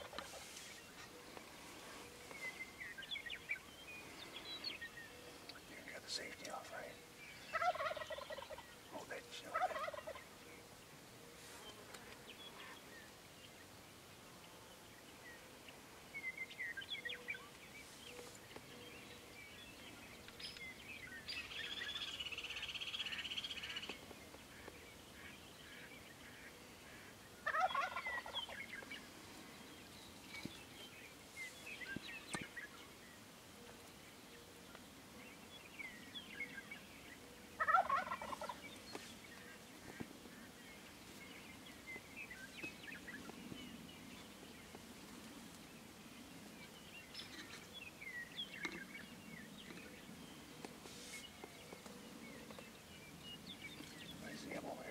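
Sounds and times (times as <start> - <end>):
turkey gobbling: 7.5 - 8.6, 9.5 - 10.2, 27.4 - 28.6, 37.6 - 38.6.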